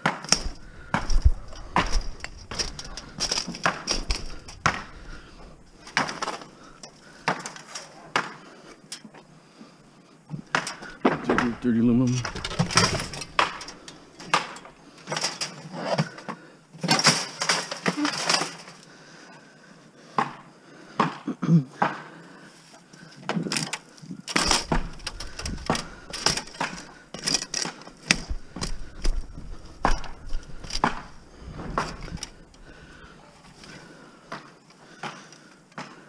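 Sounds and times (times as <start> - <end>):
scrap metal clanking and rattling: 0.3 - 8.1, 10.5 - 18.8.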